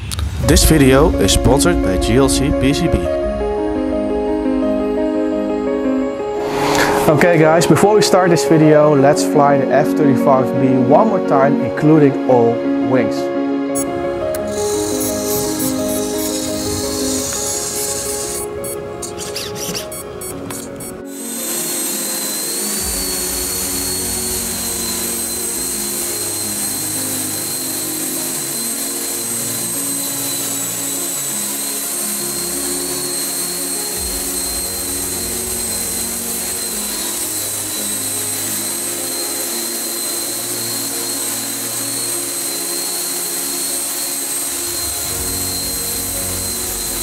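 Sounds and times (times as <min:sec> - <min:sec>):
background music: 0:00.0 - 0:47.0
electric ducted fans whining: 0:13.8 - 0:47.0.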